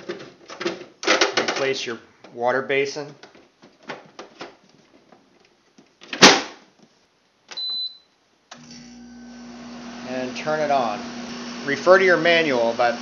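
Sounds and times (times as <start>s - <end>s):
short electronic beep: 7.6s - 8.1s.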